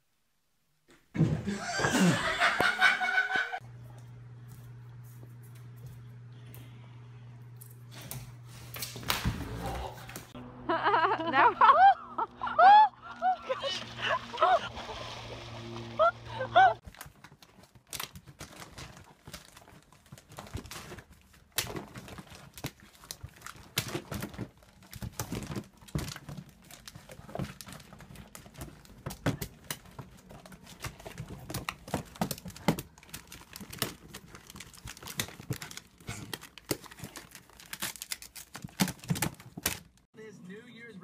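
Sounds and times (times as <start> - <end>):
wrapping paper crinkling: 16.8 - 40.1.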